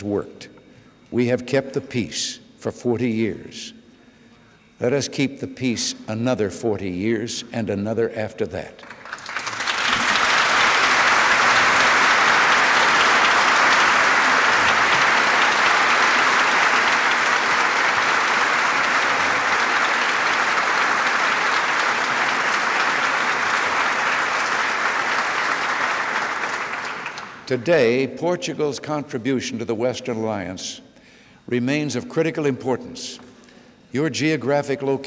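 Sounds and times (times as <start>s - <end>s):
audience applauding: 8.8s - 27.5s.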